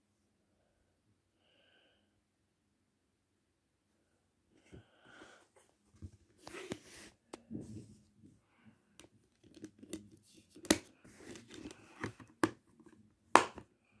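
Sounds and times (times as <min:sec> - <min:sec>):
plastic case rustling: 0:09.3 - 0:13.0.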